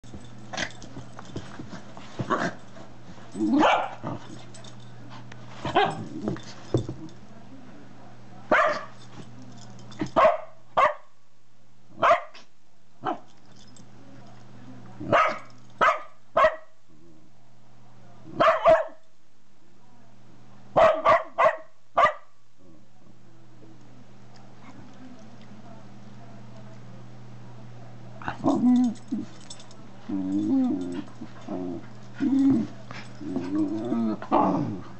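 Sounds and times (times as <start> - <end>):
dog barking: 3.6 - 4.0, 8.5 - 8.9, 10.2 - 11.1, 12.0 - 12.4, 15.1 - 16.7, 18.4 - 19.0, 20.8 - 22.3.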